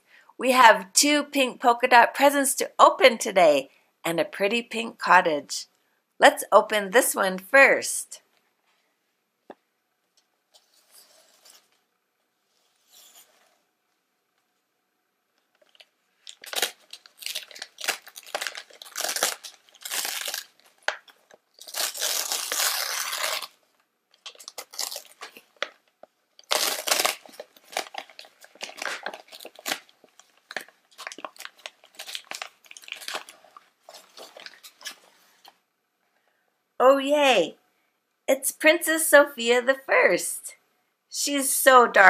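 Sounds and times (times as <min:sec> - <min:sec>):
wrapping paper tearing and crumpling: 0:15.6 - 0:23.6, 0:24.2 - 0:25.8, 0:26.4 - 0:35.6.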